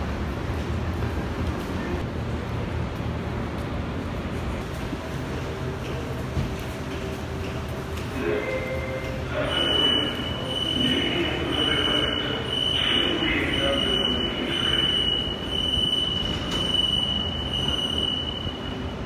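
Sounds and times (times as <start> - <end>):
low hum of train equipment: 0.0 - 19.0
steady high tone: 8.2 - 19.0.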